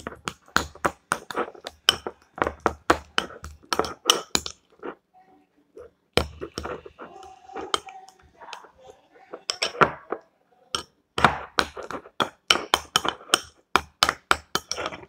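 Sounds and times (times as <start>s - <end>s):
utensil clinking against bowl: 6.2s - 10.1s.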